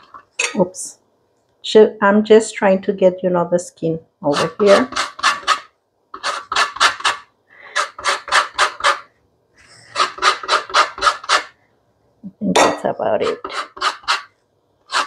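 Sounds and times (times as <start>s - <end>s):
rind grated on metal grater: 4.3s - 9.1s, 9.9s - 11.5s, 13.2s - 14.3s.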